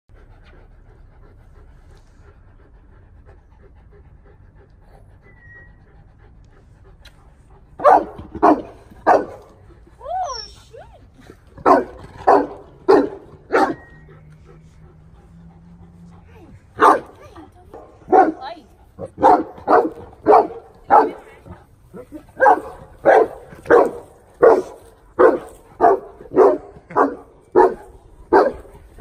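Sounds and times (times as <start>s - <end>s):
dog panting: 0.1s - 29.0s
dog barking loudly: 7.8s - 9.5s, 11.6s - 13.8s, 16.8s - 17.1s, 18.1s - 21.2s, 22.4s - 28.6s
dog whining: 10.0s - 11.0s.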